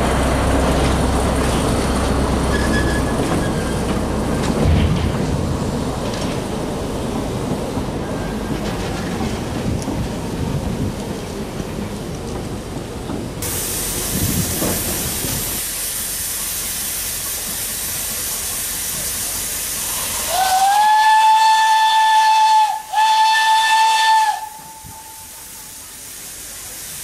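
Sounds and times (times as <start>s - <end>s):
steam locomotive hissing: 0.0s - 27.0s
steam whistle blasts: 20.2s - 25.7s.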